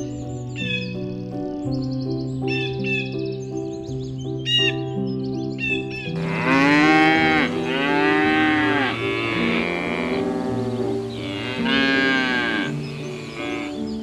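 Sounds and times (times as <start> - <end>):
soft background music: 0.0 - 14.0
cattle mooing: 6.2 - 13.9.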